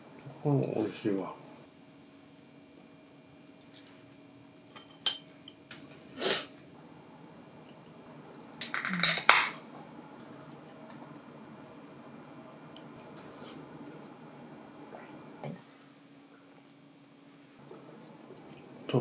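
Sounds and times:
tableware clinking on plates: 4.8 - 5.6.

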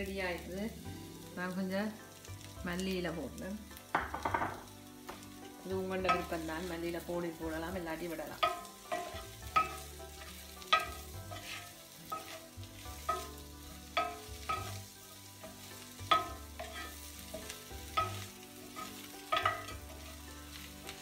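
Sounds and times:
faint sizzle: 0.0 - 21.0
wooden spoon knocking on pan: 3.9 - 5.3, 16.1 - 19.8.

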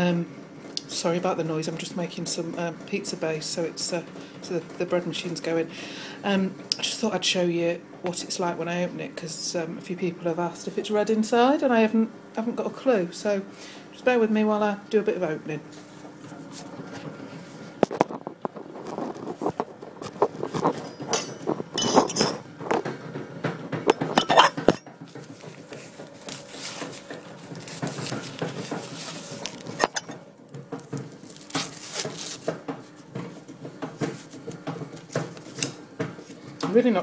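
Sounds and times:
bread machine humming: 0.0 - 37.0
corn husks rustling and tearing: 31.2 - 32.6.

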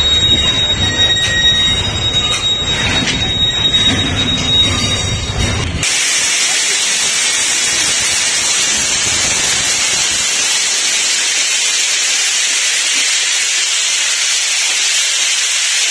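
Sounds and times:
loud steady hiss: 5.8 - 15.9.

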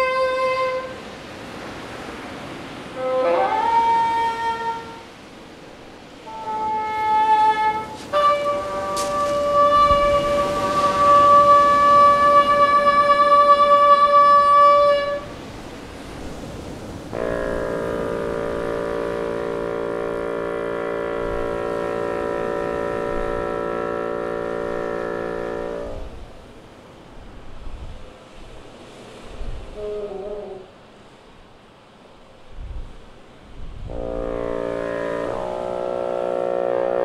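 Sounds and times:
sea surf: 0.0 - 37.0
bassoon holding long notes: 3.0 - 5.1, 6.3 - 15.3, 17.1 - 26.2, 33.8 - 37.0.

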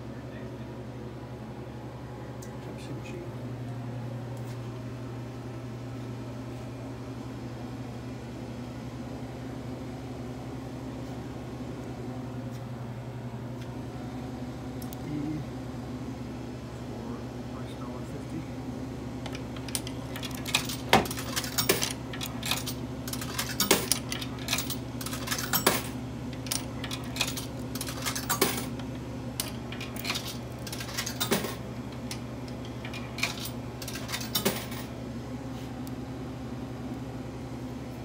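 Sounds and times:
steady low hum: 0.0 - 38.0
coins clinking through coin slot: 19.6 - 28.8, 29.4 - 31.6, 32.8 - 34.9.

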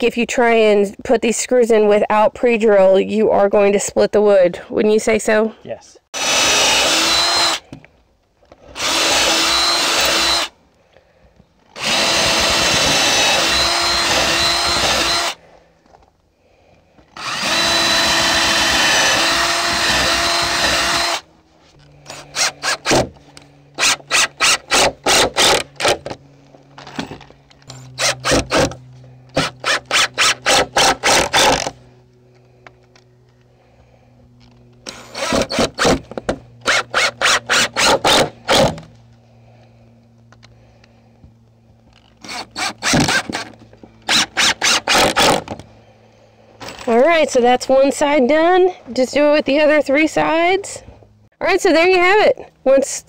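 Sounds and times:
impact driver driving screws: 6.2 - 7.8, 8.7 - 10.5, 11.7 - 15.4, 17.1 - 21.2, 22.0 - 26.2, 26.8 - 31.8, 34.4 - 38.9, 41.9 - 45.7.

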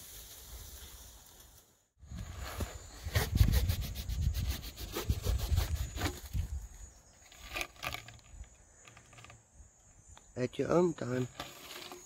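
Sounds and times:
snake rustling on dry grass: 0.0 - 9.2.

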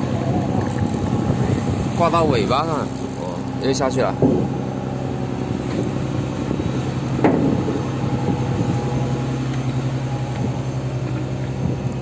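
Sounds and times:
boat engine humming: 0.0 - 12.0.

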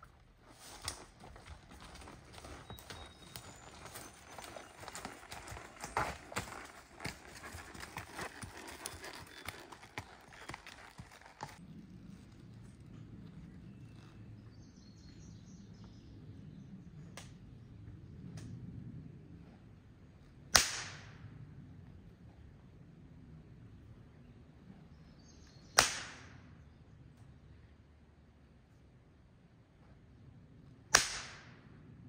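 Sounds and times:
horse hooves clopping on dirt: 0.0 - 16.0.

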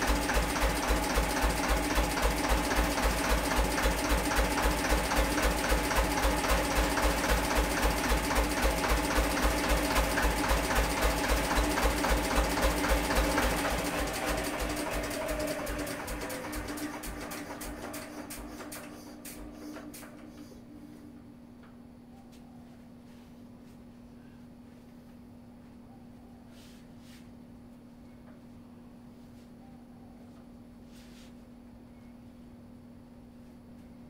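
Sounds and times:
stationary engine running: 0.0 - 20.8.

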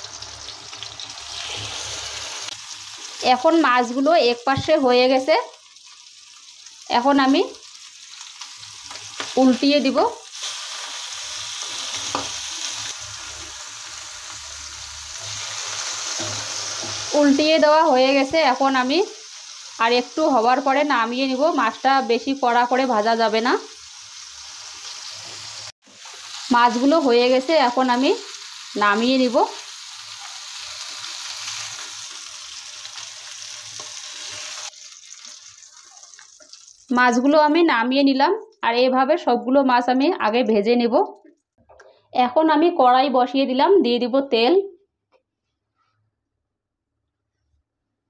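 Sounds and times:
fish sizzling in oil: 0.0 - 37.3.

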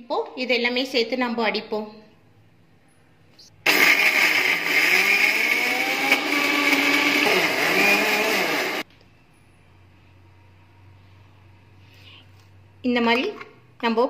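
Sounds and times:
mixer grinder running: 3.7 - 8.8.

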